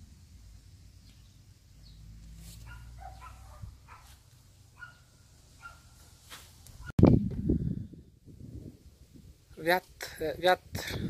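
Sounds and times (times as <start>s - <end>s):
wind rumble on microphone: 6.8s - 11.0s.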